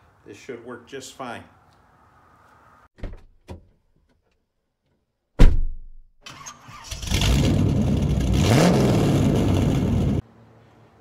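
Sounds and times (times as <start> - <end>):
engine starting and running: 6.2 - 10.2.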